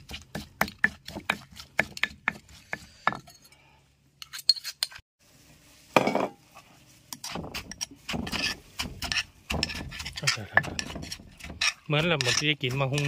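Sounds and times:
pestle pounding in stone mortar: 0:00.0 - 0:03.3, 0:07.2 - 0:13.0
metal spoon scraping stone: 0:04.2 - 0:05.0, 0:07.1 - 0:13.0.

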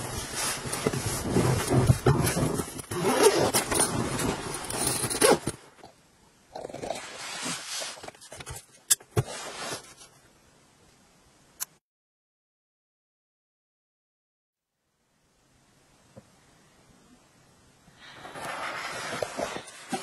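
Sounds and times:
sleeping bag rustling: 0:00.0 - 0:05.6.

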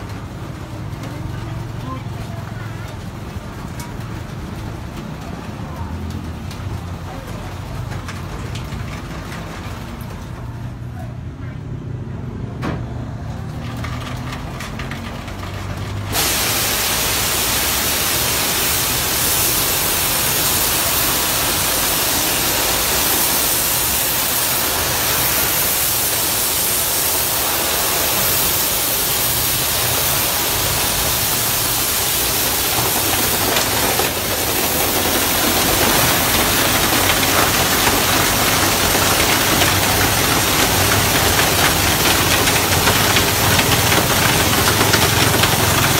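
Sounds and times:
water jets hissing: 0:16.1 - 0:45.9.

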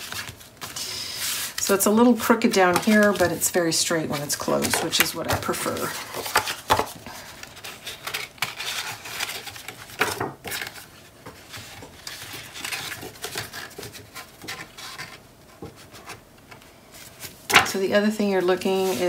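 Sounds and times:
heavy paper sliding and rustling: 0:18.4 - 0:19.0.

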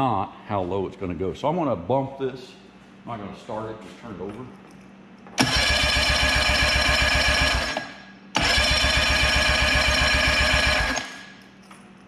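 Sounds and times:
outboard engine starter cranking: 0:05.4 - 0:11.2.

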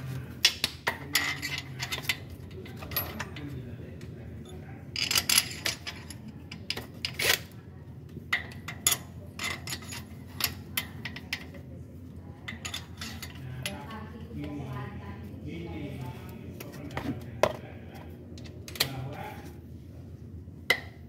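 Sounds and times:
metal bolts clicking and clinking: 0:00.4 - 0:03.5, 0:04.4 - 0:07.6, 0:08.3 - 0:11.6.

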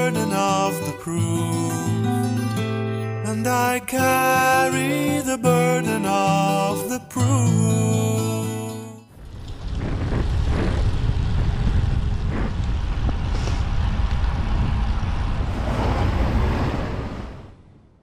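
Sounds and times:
wind buffeting microphone: 0:09.1 - 0:18.0.

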